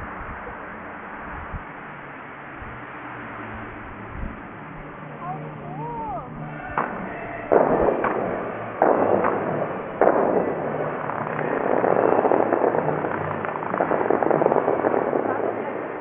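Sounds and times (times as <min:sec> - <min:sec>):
fountain water blasts: 0:00.0 - 0:16.0.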